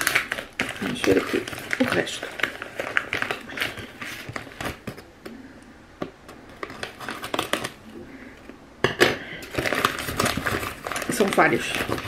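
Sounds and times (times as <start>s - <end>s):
paper crinkling: 0.0s - 5.1s, 6.5s - 7.9s, 9.4s - 12.0s
sharp paper crack: 0.0s - 5.1s, 6.5s - 7.8s, 9.4s - 12.0s.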